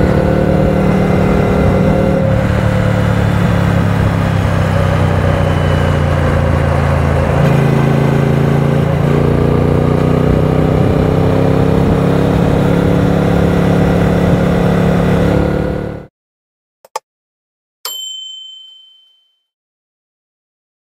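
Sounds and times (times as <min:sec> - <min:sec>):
motorcycle engine at speed: 0:00.0 - 0:16.1.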